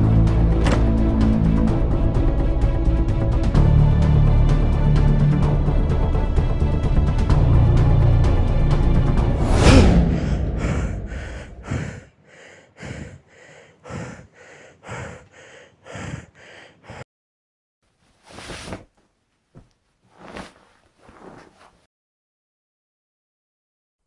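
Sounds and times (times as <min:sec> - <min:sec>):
person breathing hard: 0:00.4 - 0:01.7, 0:09.4 - 0:17.1
loud film score hit: 0:09.3 - 0:11.6
person gasping: 0:09.8 - 0:17.1.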